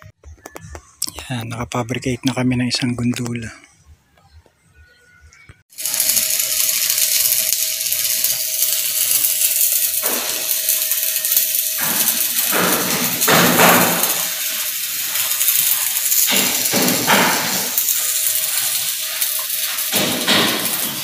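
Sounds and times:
welding arc hissing: 0:05.7 - 0:21.0.

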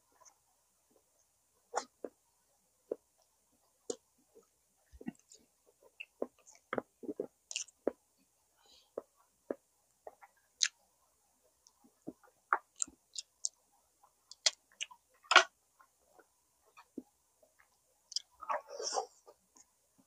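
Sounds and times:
person chewing with mouth smacks: 0:05.9 - 0:07.9.

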